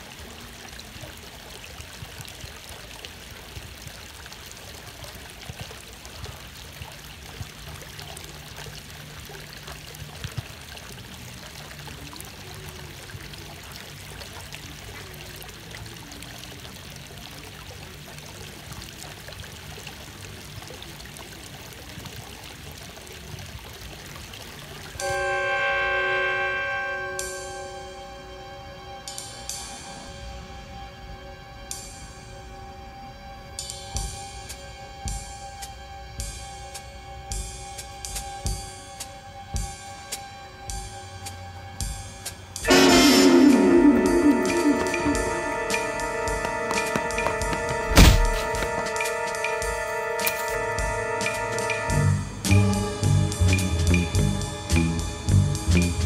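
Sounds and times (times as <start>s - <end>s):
water flowing over a weir: 0.0s - 30.5s, 31.8s - 56.0s
sustained music chord: 25.0s - 33.6s, 42.6s - 56.0s.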